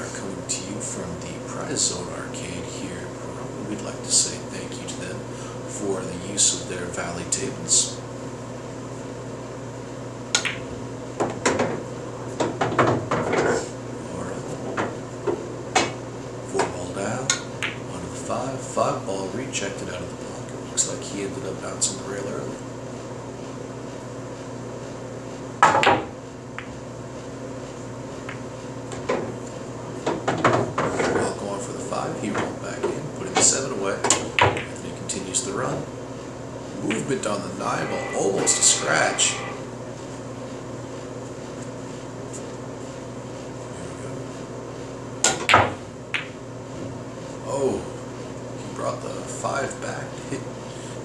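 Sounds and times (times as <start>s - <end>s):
low room hum: 0.0s - 51.0s
cue striking pool ball: 10.3s - 11.8s, 45.2s - 46.4s
pool cue striking ball: 10.3s - 11.8s, 14.6s - 16.0s, 16.6s - 17.9s, 25.6s - 26.8s, 32.2s - 34.8s, 36.8s - 39.8s, 45.2s - 46.4s
pool balls clicking: 10.3s - 13.6s, 16.6s - 18.0s, 28.2s - 31.5s, 32.2s - 34.9s, 45.2s - 46.4s.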